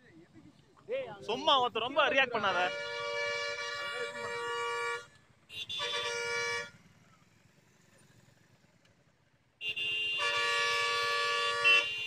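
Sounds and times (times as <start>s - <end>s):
vehicle horn blast: 2.5s - 6.8s, 9.6s - 12.0s.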